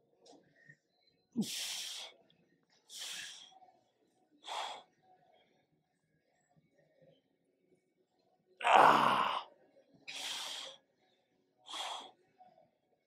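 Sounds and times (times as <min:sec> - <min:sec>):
man grunting: 0:08.6 - 0:09.4.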